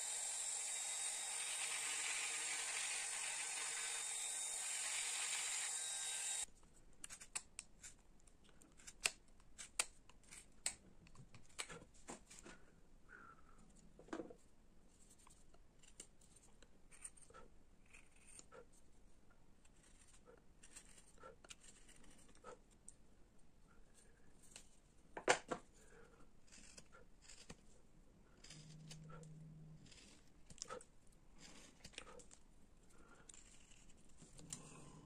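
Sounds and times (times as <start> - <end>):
carving blade scraping wood: 0.0 - 8.0, 8.6 - 10.8, 15.2 - 18.7, 19.6 - 22.6, 25.9 - 34.7.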